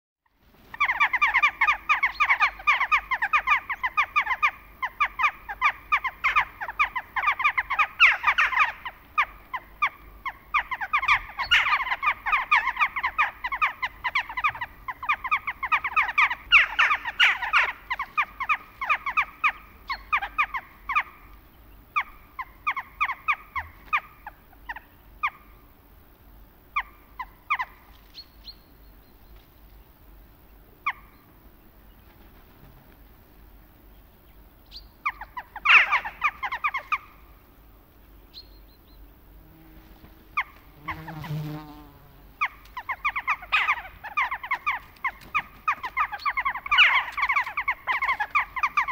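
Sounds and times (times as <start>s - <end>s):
jackdaws calling: 0.7s - 25.6s, 26.7s - 27.9s, 34.7s - 37.5s, 42.4s - 48.9s.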